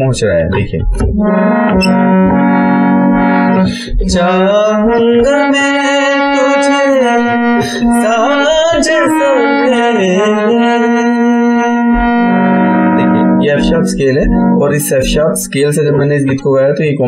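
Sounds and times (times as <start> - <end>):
harmonium notes: 0.0 - 17.0
man singing: 3.6 - 17.0.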